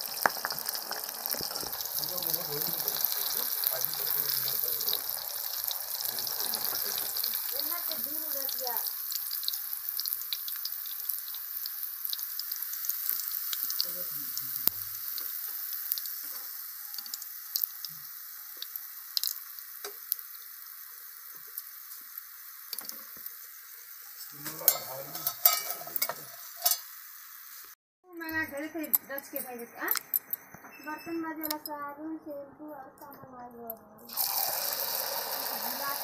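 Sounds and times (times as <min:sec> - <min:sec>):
oil sizzling and crackling: 0:00.0 - 0:30.6, 0:34.1 - 0:36.0
spoon scraping metal pan: 0:24.2 - 0:26.9.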